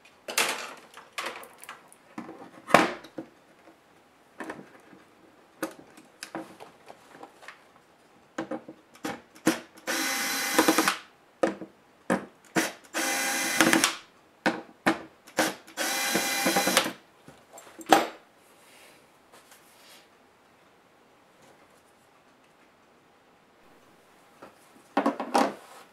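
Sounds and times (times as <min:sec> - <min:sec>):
electric screwdriver running: 0:09.9 - 0:11.0, 0:13.0 - 0:13.9, 0:15.4 - 0:16.9.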